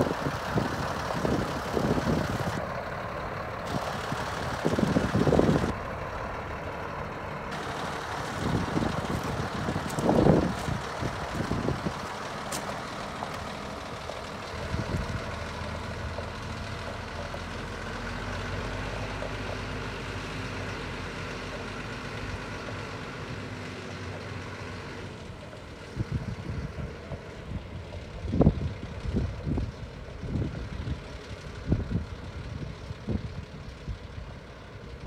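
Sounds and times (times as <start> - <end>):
wind buffeting microphone: 0.0 - 2.6, 3.7 - 5.8, 7.6 - 12.7, 14.6 - 15.4, 25.9 - 31.0
diesel truck engine running: 0.0 - 35.0.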